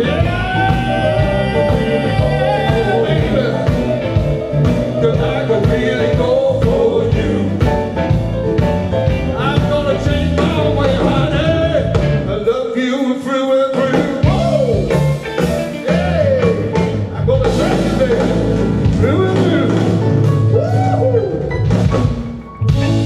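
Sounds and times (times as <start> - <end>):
blues band playing: 0.0 - 23.0.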